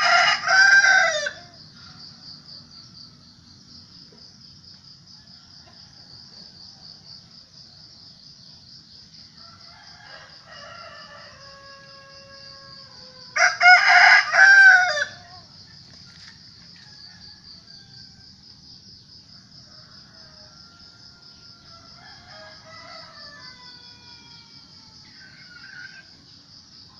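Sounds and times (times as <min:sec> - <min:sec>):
rooster crowing: 0:00.0 - 0:02.1, 0:09.3 - 0:15.5, 0:16.7 - 0:18.4, 0:19.4 - 0:26.2
distant rooster crowing: 0:00.0 - 0:02.4, 0:05.1 - 0:07.2, 0:09.1 - 0:15.5, 0:16.2 - 0:18.7, 0:19.3 - 0:26.3
high insect trill: 0:00.0 - 0:26.9.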